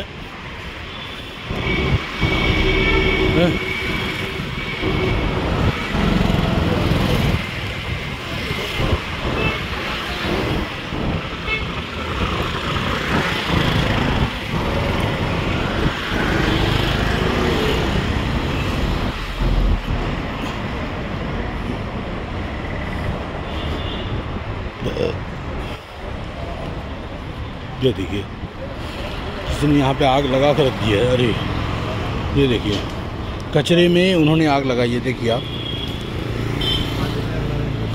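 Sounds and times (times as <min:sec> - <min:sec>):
auto-rickshaws and motorbikes passing: 0:01.9 - 0:23.4.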